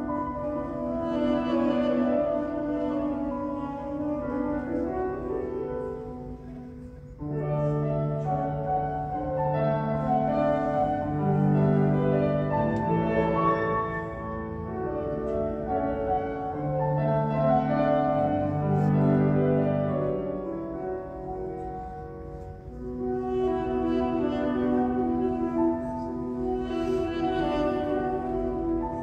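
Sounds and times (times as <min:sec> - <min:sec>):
held duduk note: 0:00.0 - 0:09.0, 0:22.6 - 0:29.0
grand piano playing: 0:00.0 - 0:29.0.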